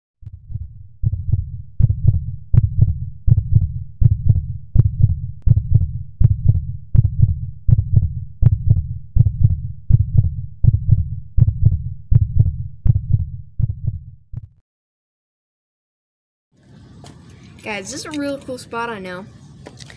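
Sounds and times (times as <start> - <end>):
deep thumping beat: 0.2 - 14.6.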